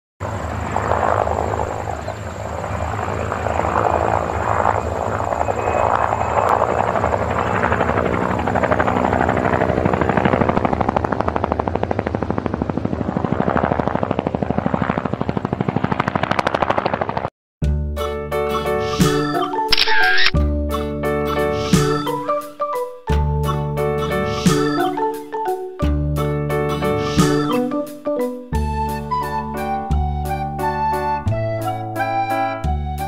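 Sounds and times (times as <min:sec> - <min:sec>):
helicopter rotor chop: 0:00.2 - 0:17.3.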